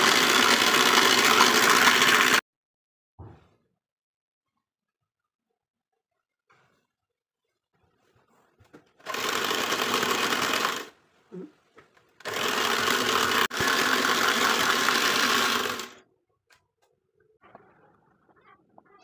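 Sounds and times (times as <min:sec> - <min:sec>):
electric hand mixer whisking: 0:00.0 - 0:02.4, 0:09.1 - 0:10.9, 0:12.2 - 0:16.0.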